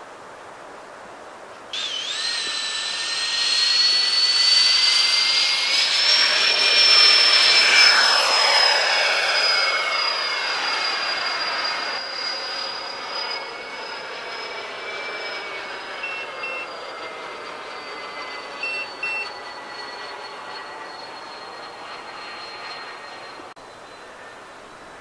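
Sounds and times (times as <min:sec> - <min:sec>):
model jet fans whining: 0:00.4 - 0:25.0
short beeps: 0:16.0 - 0:16.9, 0:18.1 - 0:21.8.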